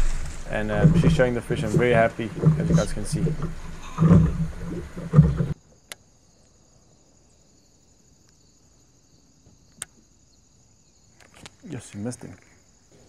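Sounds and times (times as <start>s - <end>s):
sharp clicks: 9.7s - 10.0s.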